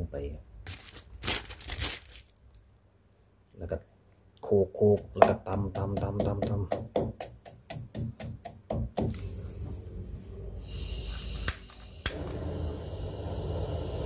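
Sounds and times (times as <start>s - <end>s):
pestle pounding in mortar: 4.8s - 9.2s
low rumble: 9.2s - 14.0s.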